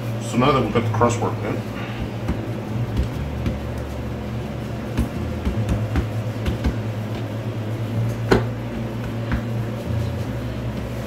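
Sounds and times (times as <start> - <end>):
steady low hum: 0.0 - 11.0
hand slapping dough: 1.7 - 11.0
hands tapping pizza dough: 1.9 - 4.0, 4.8 - 7.5, 8.1 - 9.7.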